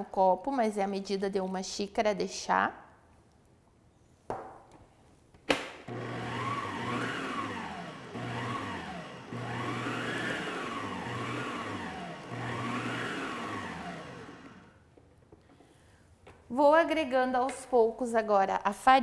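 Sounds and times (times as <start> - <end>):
stand mixer whining: 5.9 - 14.7.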